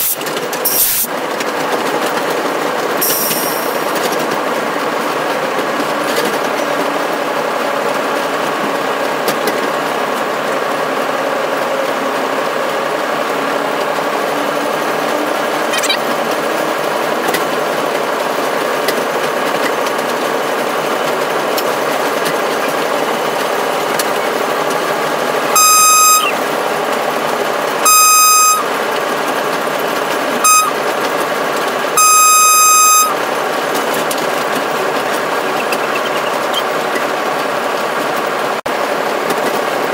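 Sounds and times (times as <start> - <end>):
locomotive running noise: 0.0 - 39.9
locomotive horn blasts: 25.5 - 26.4, 27.8 - 28.8, 30.4 - 30.8, 32.0 - 33.2.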